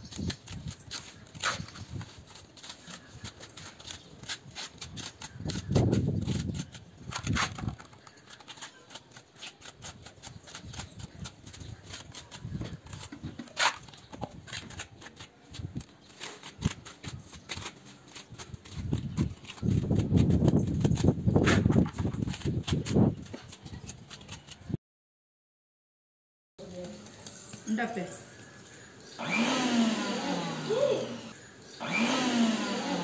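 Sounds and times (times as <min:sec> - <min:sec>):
trowel scraping and tapping mortar: 0:00.0 - 0:24.8.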